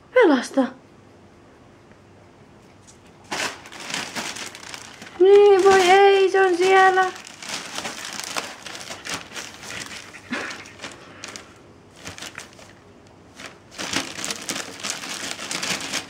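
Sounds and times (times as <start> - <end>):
plastic sheeting crinkling: 3.3 - 16.0.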